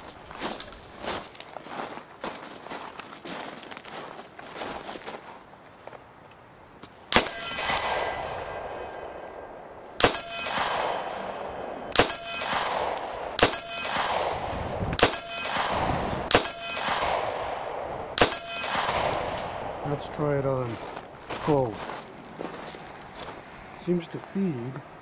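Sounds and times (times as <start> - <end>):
gunshots with ringing tail: 7.1 - 20.8.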